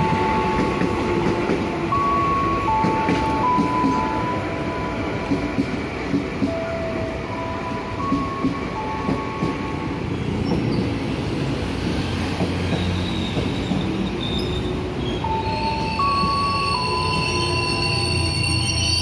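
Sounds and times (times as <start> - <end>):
train wheel and motor rumble: 0.0 - 19.0
wheel squeal: 12.7 - 19.0.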